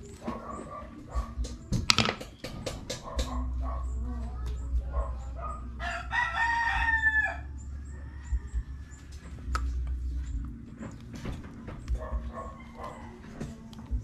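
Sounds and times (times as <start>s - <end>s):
rooster crowing: 5.8s - 9.4s, 12.4s - 13.7s.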